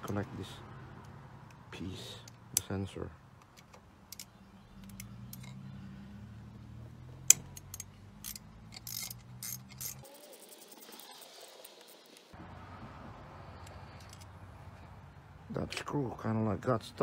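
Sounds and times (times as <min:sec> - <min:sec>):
ratchet wrench clicking: 0:07.3 - 0:10.6.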